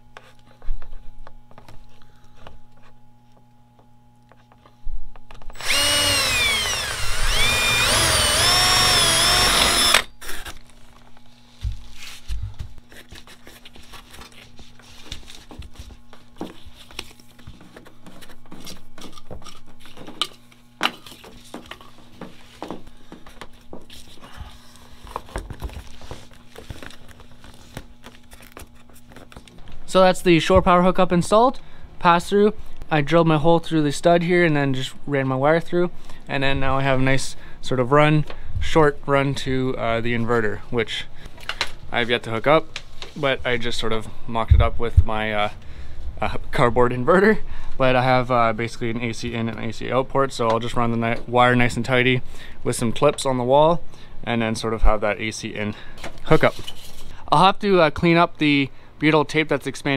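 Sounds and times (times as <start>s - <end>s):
cordless drill boring through wood: 5.5s - 10.5s.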